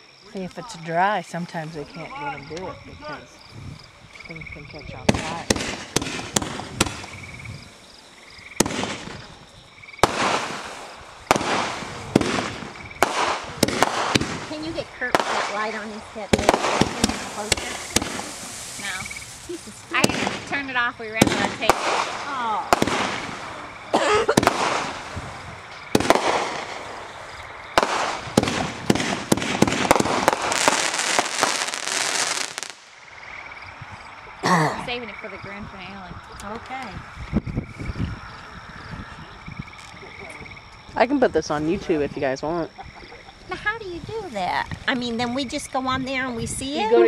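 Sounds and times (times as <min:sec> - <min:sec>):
firework crackling: 0:05.0 - 0:33.3
firework shells bursting: 0:05.1 - 0:07.2, 0:08.5 - 0:09.4, 0:10.0 - 0:33.1.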